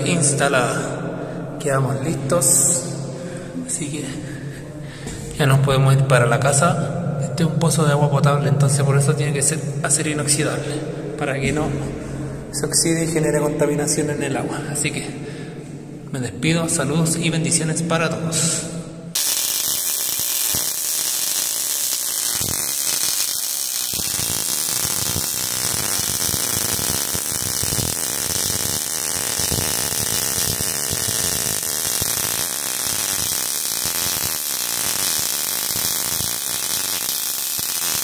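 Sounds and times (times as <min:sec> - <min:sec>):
buzzing hum: 0:19.1 - 0:38.0
electronic static: 0:19.2 - 0:38.0.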